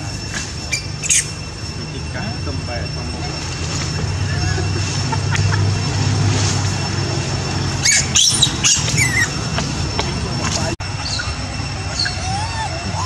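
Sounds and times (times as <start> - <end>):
steady low rumble: 0.0 - 13.0
baby monkey squealing: 0.7 - 1.4, 7.8 - 9.4, 10.3 - 13.0.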